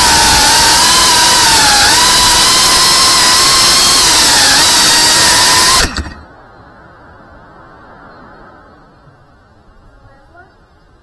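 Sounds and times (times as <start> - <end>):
drone motors whining: 0.0 - 6.3.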